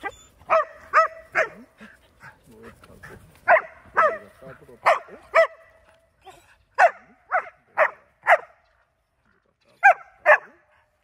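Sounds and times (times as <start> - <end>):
dog barking: 0.5 - 1.7, 3.4 - 5.7, 6.8 - 8.6, 9.8 - 10.7.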